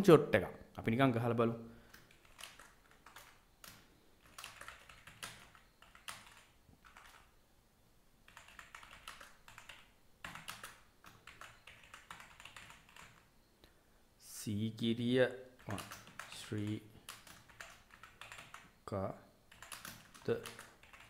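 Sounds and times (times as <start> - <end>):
faint keyboard typing: 1.8 - 7.4, 8.2 - 13.3, 15.6 - 18.8, 19.5 - 21.0.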